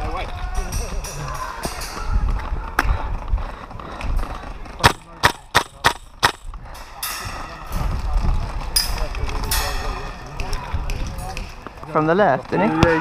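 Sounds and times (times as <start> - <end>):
airsoft rifle shots: 4.8 - 6.5.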